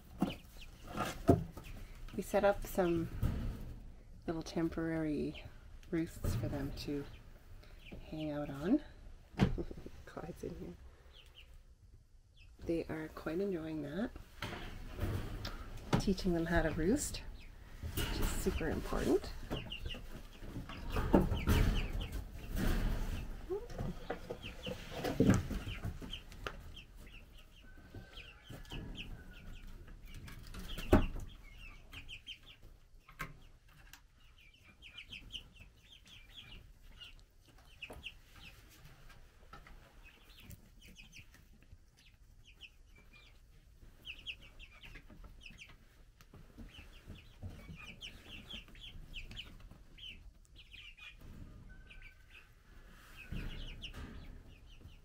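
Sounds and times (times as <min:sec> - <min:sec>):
chicks peeping: 0:00.0 - 0:55.0.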